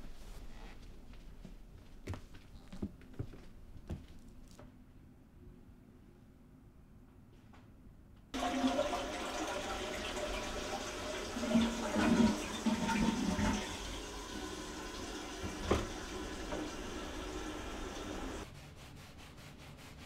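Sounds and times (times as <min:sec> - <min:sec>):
toilet flushing: 0:08.4 - 0:18.4
water gurgling: 0:08.4 - 0:18.4.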